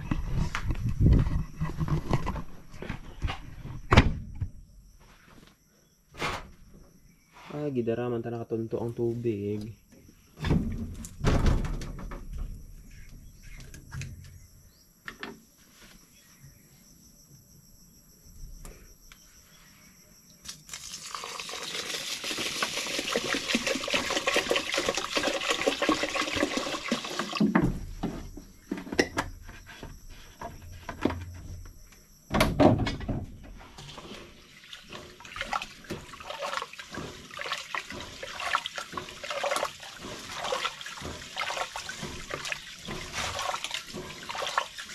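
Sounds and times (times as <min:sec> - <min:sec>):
thump: 0:03.9 - 0:04.6, 0:10.4 - 0:12.6, 0:32.3 - 0:33.5
water trickling and pattering: 0:20.7 - 0:27.5, 0:33.8 - 0:44.9
water pouring and splashing: 0:20.7 - 0:27.9, 0:33.7 - 0:44.9.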